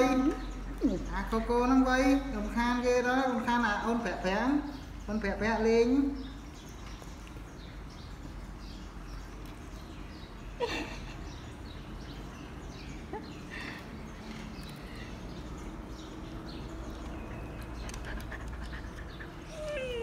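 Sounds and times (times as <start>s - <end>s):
dog panting and sniffing: 17.0s - 20.0s.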